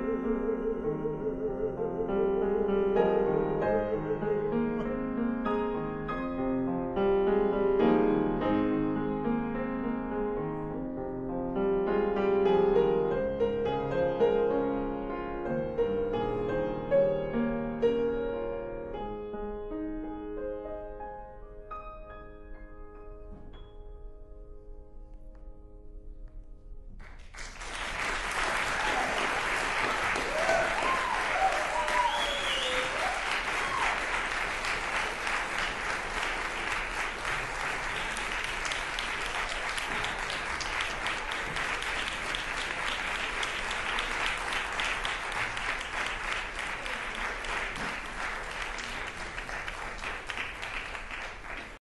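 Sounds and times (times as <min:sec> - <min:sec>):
crowd applauding: 0:27.0 - 0:51.8
people whooping and calling out: 0:28.7 - 0:29.4, 0:30.2 - 0:34.1.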